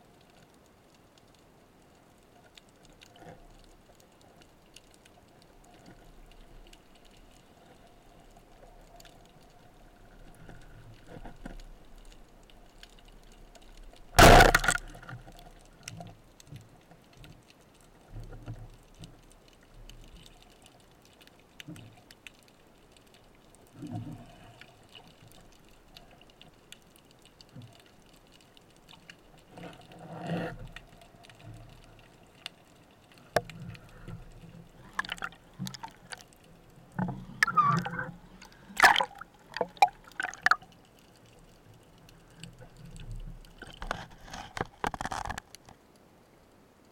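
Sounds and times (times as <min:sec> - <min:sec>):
faint underwater clicks: 0:00.0 - 0:46.9
speargun firing underwater: 0:14.2 - 0:15.1, 0:34.9 - 0:35.9, 0:38.8 - 0:40.6
soft knocks in water: 0:38.8 - 0:40.6.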